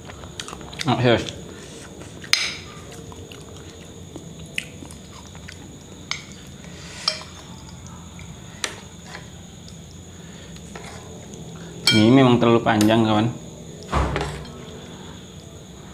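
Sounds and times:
soft chewing: 0.0 - 11.8
metal spoon clinking on glass bowl: 11.8 - 12.2.

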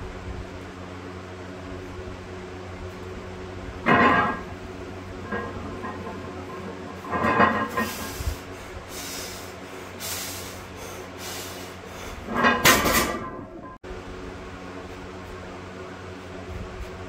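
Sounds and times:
steady hum: 0.0 - 17.0
barbell plates rattling: 5.2 - 8.1.

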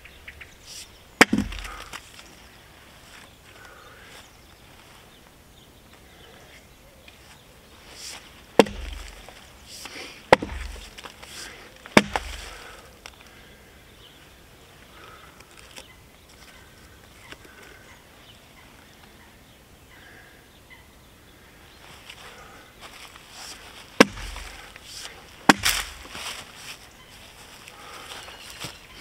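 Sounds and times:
axe chopping wood: 1.2 - 2.0, 8.0 - 12.8, 24.0 - 26.3.

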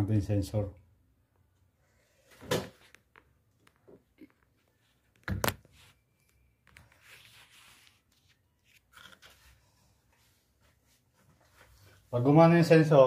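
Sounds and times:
soft rubbing rustle: 6.9 - 12.4.

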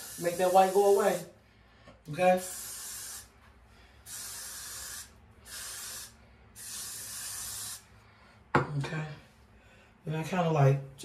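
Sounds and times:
aerosol hair spray hissing: 0.0 - 1.3, 2.1 - 3.4, 4.0 - 7.9.

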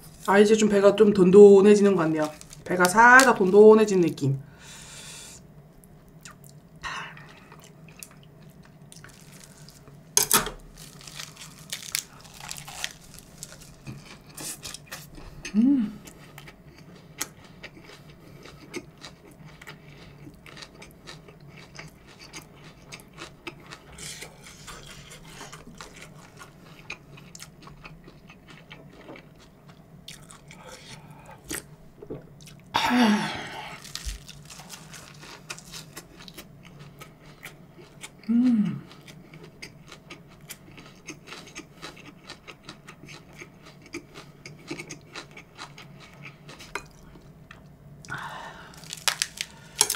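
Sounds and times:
chewing and crunching: 2.1 - 3.3, 6.2 - 9.9, 10.6 - 32.7, 33.8 - 49.9
person humming: 15.4 - 16.0, 38.2 - 38.9.

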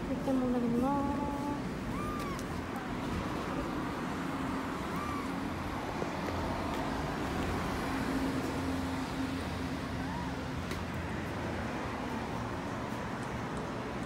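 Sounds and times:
kitten mewing: 1.8 - 3.0, 4.8 - 5.5.

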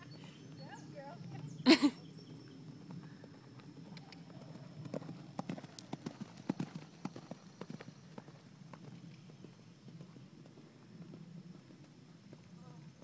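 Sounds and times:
horse hoofbeats on grass: 3.6 - 13.0.

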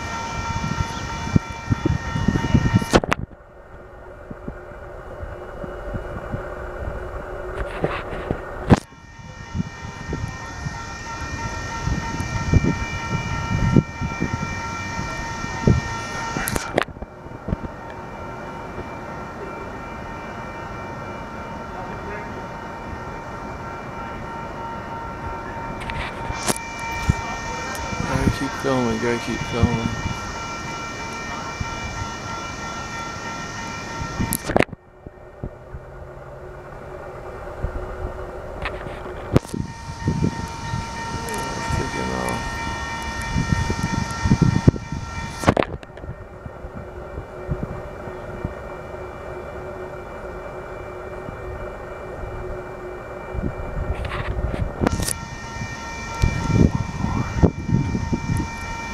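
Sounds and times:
steady high whine: 0.0 - 58.9
train cars rumbling past: 0.0 - 58.9
high ringing tones: 8.8 - 58.9.

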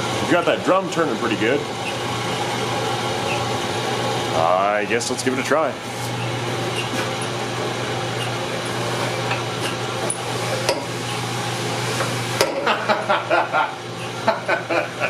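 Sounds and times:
electric motor humming: 5.2 - 15.0.

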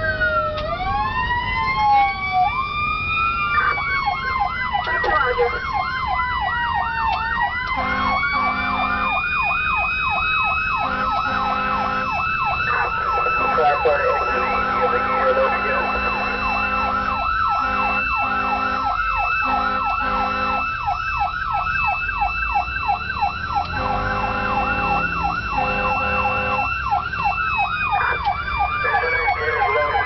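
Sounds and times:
electronic siren yelping: 0.0 - 30.0
siren wailing: 0.0 - 30.0
air horn blasts: 7.8 - 9.1, 10.8 - 12.2, 13.4 - 20.6, 23.7 - 26.7.

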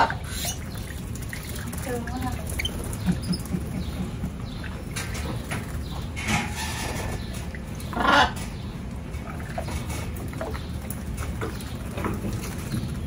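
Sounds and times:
wings fluttering in water: 0.0 - 5.9
birds splashing in water: 0.0 - 13.0
low background hum: 0.0 - 13.0.

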